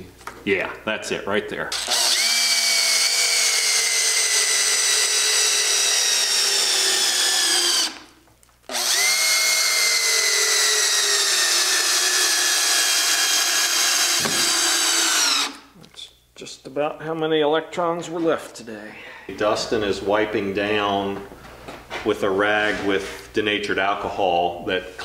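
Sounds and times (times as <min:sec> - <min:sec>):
cordless drill whining: 0:01.8 - 0:08.1, 0:08.7 - 0:15.7.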